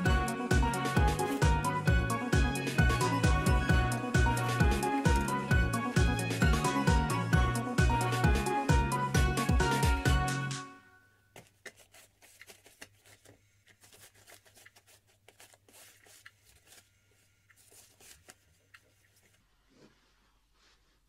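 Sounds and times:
cat scratching fabric: 11.4 - 19.4.

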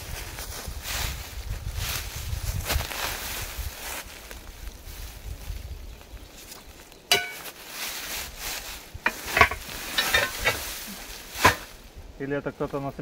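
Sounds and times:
rustling and scraping in grass: 0.0 - 13.0
metal clanking: 7.1 - 7.5, 9.0 - 10.7.

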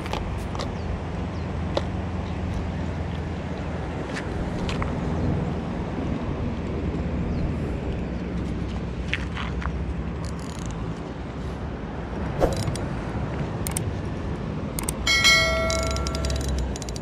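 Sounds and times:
bright bell-like chime: 15.1 - 16.6.

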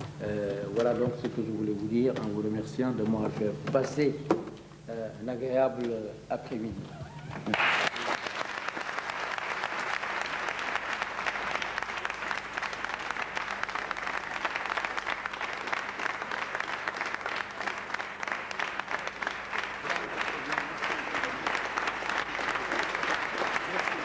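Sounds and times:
audience applauding: 7.0 - 24.0.

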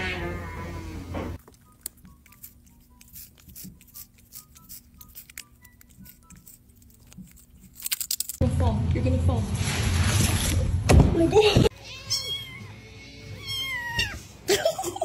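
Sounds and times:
cat crunching chip: 1.4 - 8.4.

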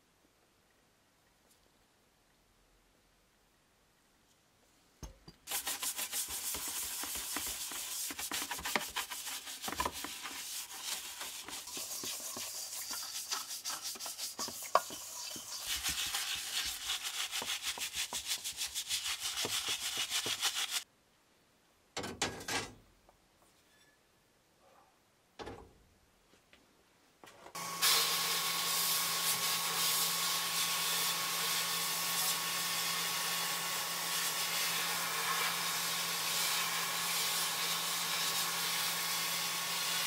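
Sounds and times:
toothbrush scrubbing metal in water: 5.5 - 20.8, 29.2 - 40.0.

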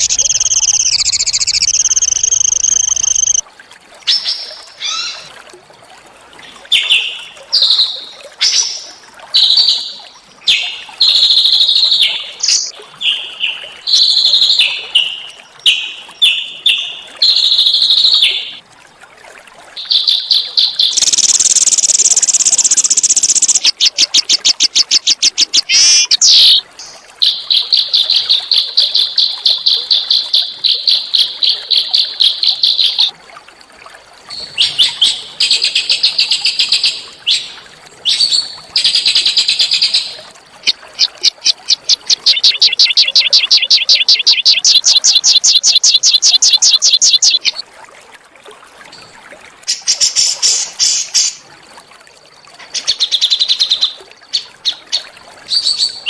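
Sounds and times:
songbird singing: 0.0 - 3.4, 11.7 - 13.2, 16.2 - 18.6, 19.9 - 27.6, 30.2 - 33.1, 39.4 - 47.6.

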